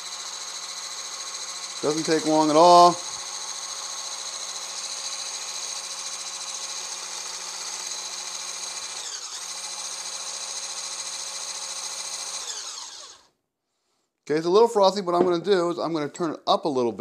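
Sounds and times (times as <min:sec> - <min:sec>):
immersion blender whining: 0:00.0 - 0:13.3.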